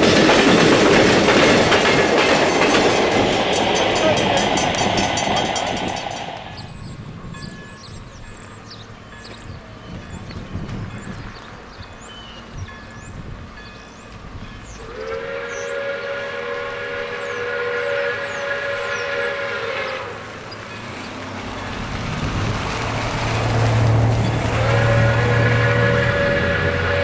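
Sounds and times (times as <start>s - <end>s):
steam whistle long blasts: 14.8s - 20.3s, 24.5s - 27.0s
motor vehicle passing: 19.9s - 27.0s.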